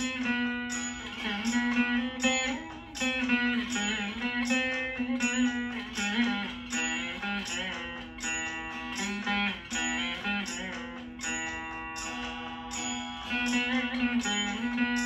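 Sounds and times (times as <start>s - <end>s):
veena plucked notes: 0.0s - 15.0s.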